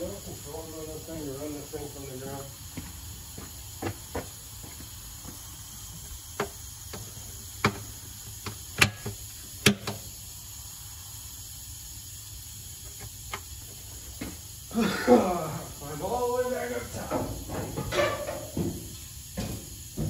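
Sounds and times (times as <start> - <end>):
steady low hum: 0.0 - 20.0
sharp knocks and clicks: 6.4 - 10.0.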